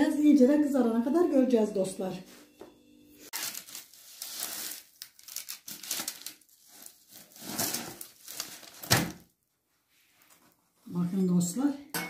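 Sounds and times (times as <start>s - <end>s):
rustling and crinkling: 3.3s - 11.0s.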